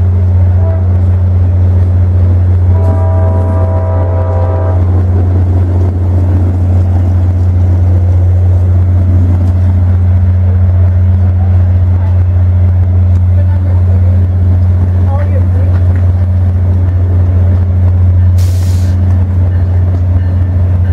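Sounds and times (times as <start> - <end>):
loud low rumble: 0.0 - 20.9
locomotive air horn chord: 0.5 - 1.1, 2.6 - 5.0.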